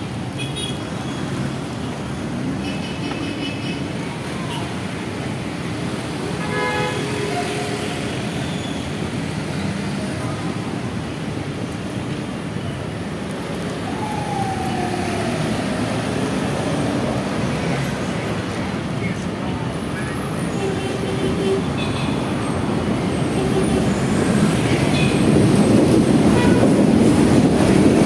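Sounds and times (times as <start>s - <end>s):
city street traffic: 0.0s - 28.0s.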